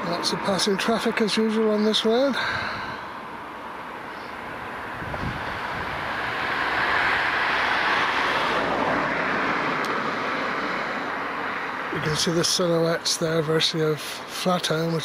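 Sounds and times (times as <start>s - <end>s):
car passing by: 4.1s - 12.4s.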